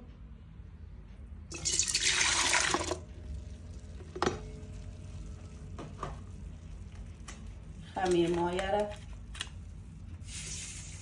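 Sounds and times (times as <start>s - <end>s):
milk pouring into metal bowl: 1.5s - 4.3s.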